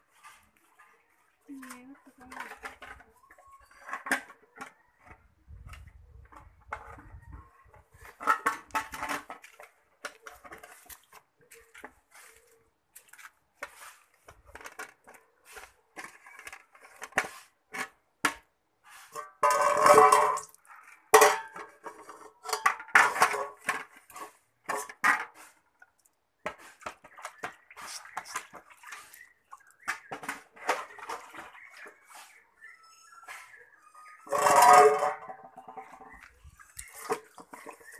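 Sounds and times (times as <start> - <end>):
metal dish clinking and knocking: 21.2 - 21.7.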